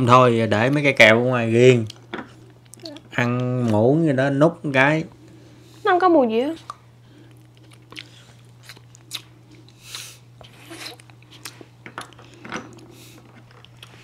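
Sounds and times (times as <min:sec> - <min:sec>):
person chewing candy: 0:01.8 - 0:03.8, 0:06.7 - 0:14.0.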